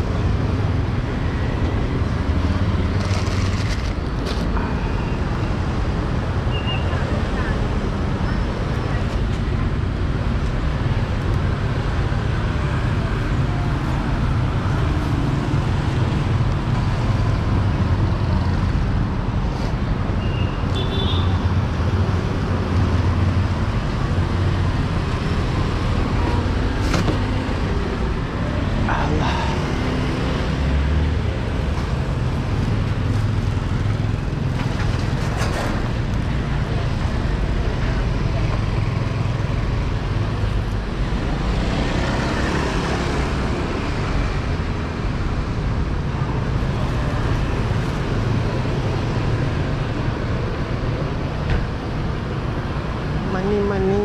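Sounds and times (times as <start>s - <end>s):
motor vehicles passing: 21.4s - 54.0s.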